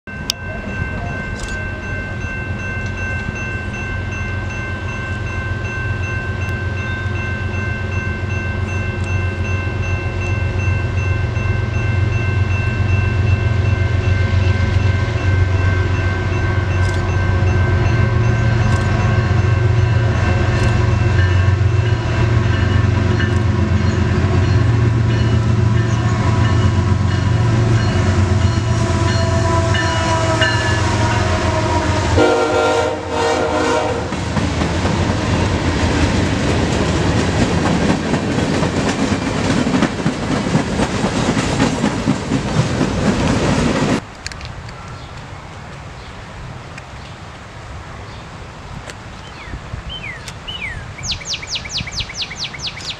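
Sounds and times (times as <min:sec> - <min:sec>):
diesel locomotive engine: 0:00.1 - 0:52.9
train wheels clattering on rails: 0:14.2 - 0:29.4, 0:33.7 - 0:45.0
train horn: 0:25.6 - 0:34.3.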